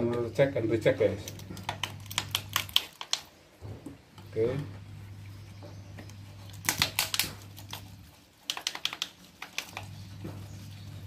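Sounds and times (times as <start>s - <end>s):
steady low hum: 0.0s - 8.5s, 9.2s - 11.0s.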